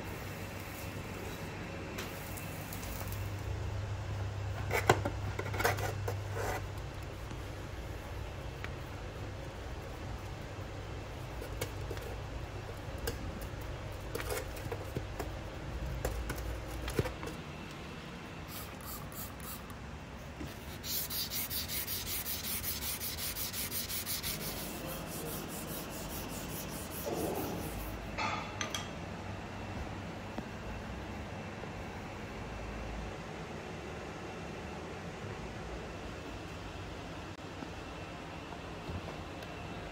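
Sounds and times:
hand sanding strokes: 0:20.5 - 0:28.0.

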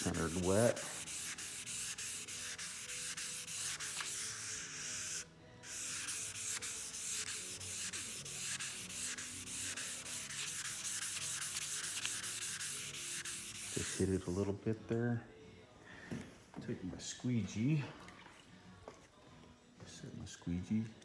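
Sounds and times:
wet sandpaper rasping: 0:00.0 - 0:14.2.

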